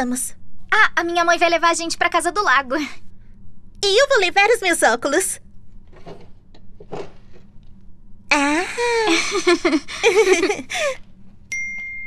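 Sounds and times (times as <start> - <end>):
girls laughing: 8.7 - 11.0
electronic doorbell chime: 11.5 - 12.0.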